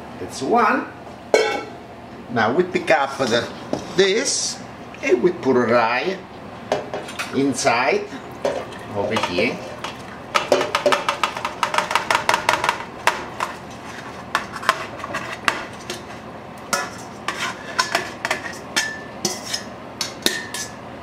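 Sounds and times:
wire skimmer scraping metal bowl: 13.4s - 19.7s.

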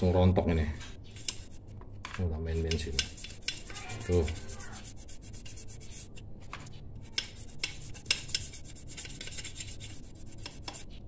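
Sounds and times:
stiff brush scrubbing metal: 2.7s - 6.2s, 7.2s - 11.0s.

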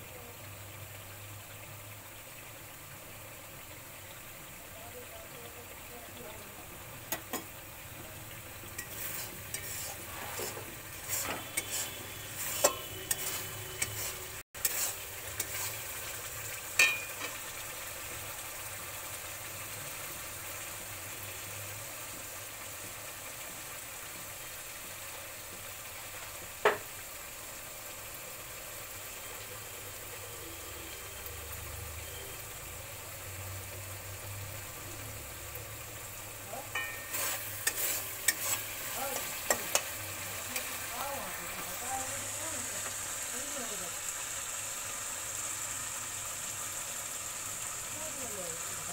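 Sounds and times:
spices sizzling in oil: 0.0s - 48.9s
spatula scraping and tapping pan: 8.7s - 15.9s, 16.7s - 17.4s, 36.7s - 40.7s.

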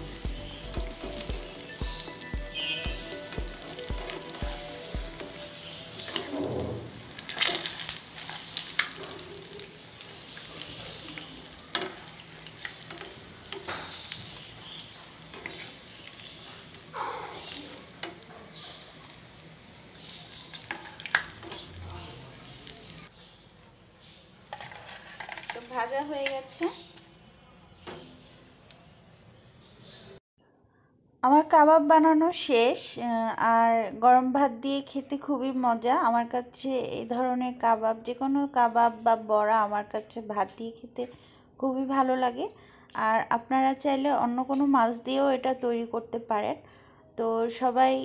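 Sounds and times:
patties sizzling in hot oil: 0.0s - 23.1s, 24.5s - 26.6s
utensils knocking and scraping pan: 24.5s - 26.7s.

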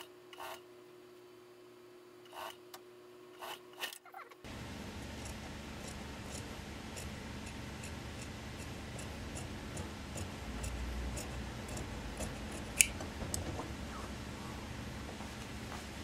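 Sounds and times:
shears snipping cloth: 5.0s - 13.0s.

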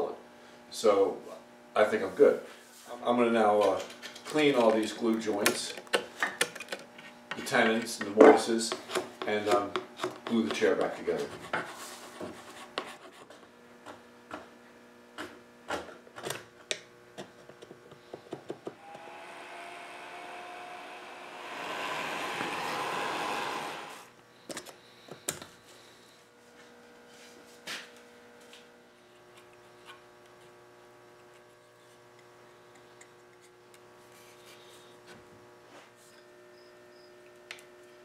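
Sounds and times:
tool tapping and scraping wood: 3.6s - 14.5s
rotary power tool grinding: 18.8s - 24.1s.

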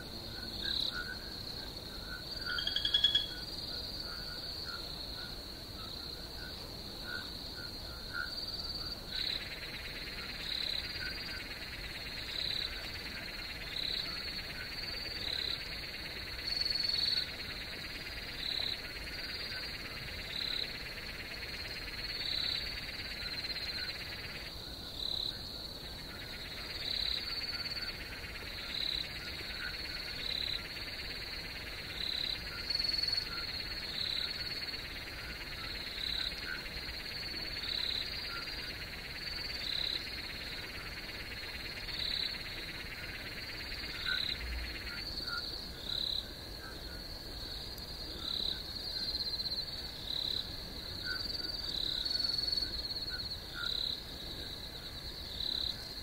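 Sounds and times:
dense insect and frog chorus: 0.0s - 56.0s
insect trill: 0.0s - 56.0s
repeating frog call: 2.5s - 3.5s.

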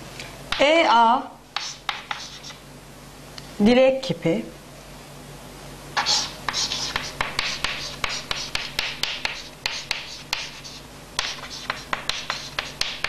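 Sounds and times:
chalk scratching on blackboard: 1.6s - 2.6s, 6.0s - 13.0s
chalk tapping on board: 1.6s - 2.6s, 6.0s - 13.0s.

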